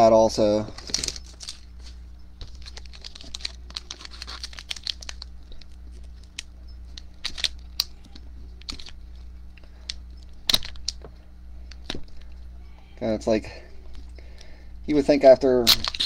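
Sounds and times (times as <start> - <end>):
steady low hum: 0.0 - 16.0
foil wrapper crinkling and tearing: 0.8 - 9.0, 15.6 - 16.0.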